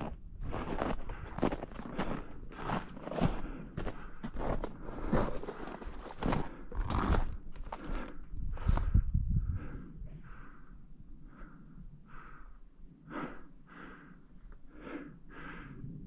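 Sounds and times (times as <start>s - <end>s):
footsteps crunching over rocky ground: 0.0s - 9.0s.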